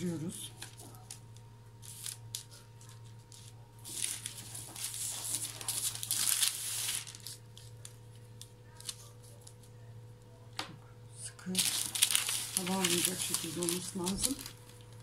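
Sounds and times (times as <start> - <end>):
baking paper rustling: 0.0 - 9.8, 11.4 - 15.0
steady low hum: 0.0 - 15.0.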